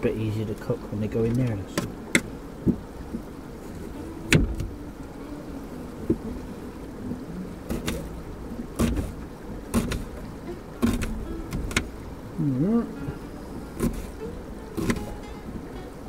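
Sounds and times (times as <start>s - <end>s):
knife chopping on wooden board: 8.8s - 9.1s, 9.7s - 10.1s.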